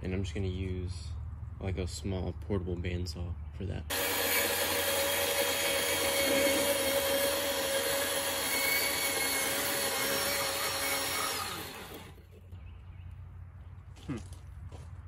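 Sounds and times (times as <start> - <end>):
bandsaw cutting plastic: 3.9 - 12.2.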